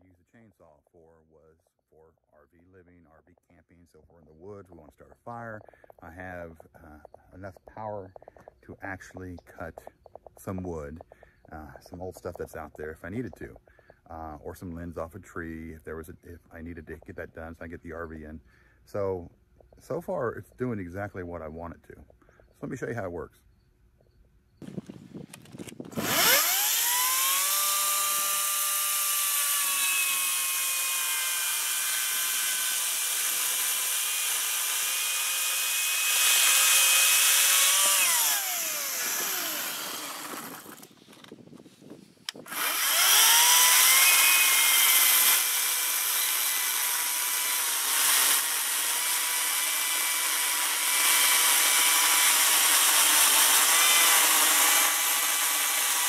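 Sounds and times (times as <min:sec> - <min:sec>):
chainsaw cutting log: 0:24.6 - 0:41.5, 0:42.3 - 0:56.0.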